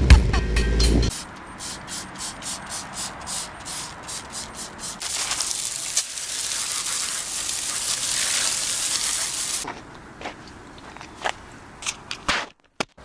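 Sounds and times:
brush scrubbing car wheel: 1.1 - 9.6
hose spraying water: 1.1 - 9.6.

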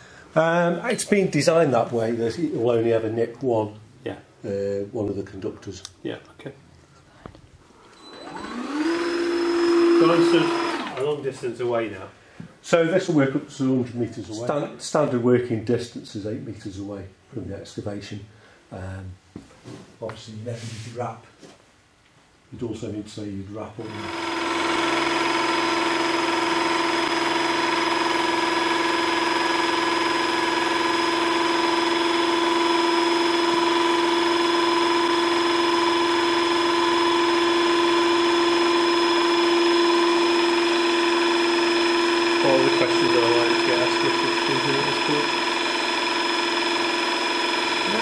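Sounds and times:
hydraulic pump whining: 7.9 - 11.4, 23.8 - 48.0.

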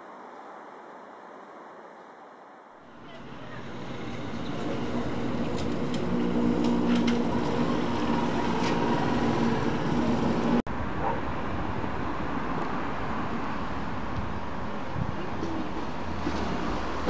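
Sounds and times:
street traffic: 2.8 - 17.0
vehicle engine running: 2.9 - 10.6.

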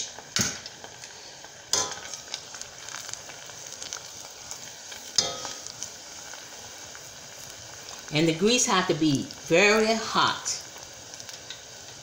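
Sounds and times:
hot oil sizzling and crackling: 0.0 - 12.0
metal tongs clinking on pan: 1.7 - 2.1, 5.2 - 5.7.

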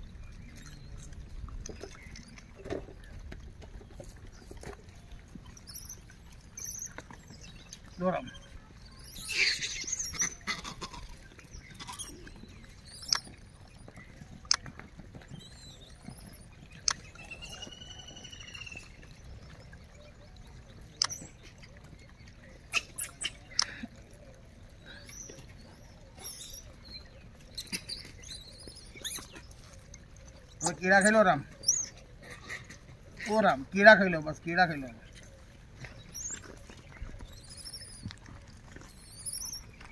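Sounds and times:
monkey clicks and chirps: 9.1 - 13.4, 15.3 - 17.5, 21.0 - 21.4, 27.6 - 29.7.

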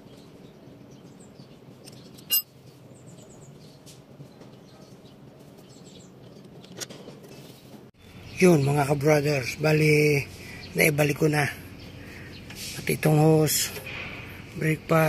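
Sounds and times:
birds chirping: 0.0 - 15.0
metal parts clinking: 1.9 - 2.5.

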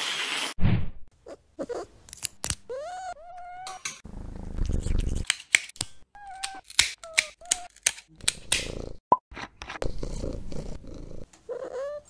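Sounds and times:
nail clippers clicking: 2.1 - 2.6, 5.2 - 8.8.

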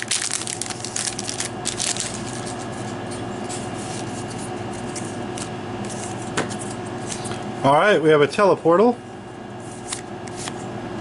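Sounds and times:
cards rustling and clicking: 0.0 - 2.7
foil wrapper crinkling and tearing: 0.0 - 2.7.

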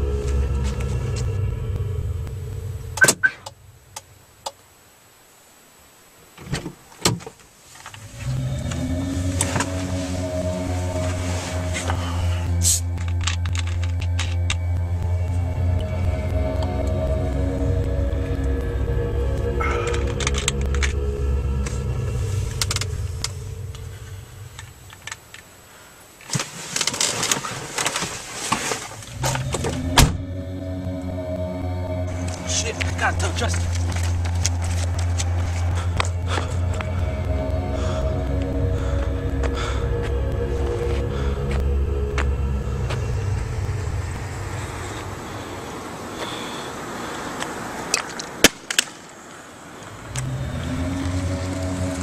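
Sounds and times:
low hum inside car: 0.0 - 6.0, 7.7 - 25.2, 28.7 - 46.7
car door shutting: 3.0 - 3.5, 29.2 - 30.4.

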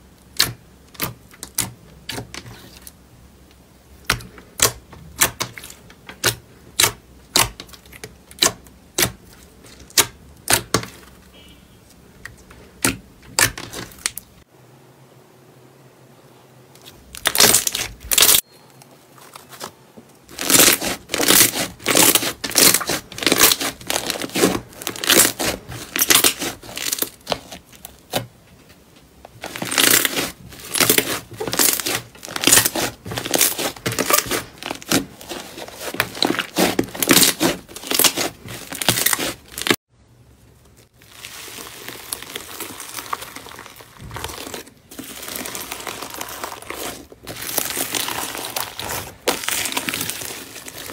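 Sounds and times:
hand rustling foam pieces: 19.0 - 28.3, 29.2 - 39.8, 40.4 - 50.9.

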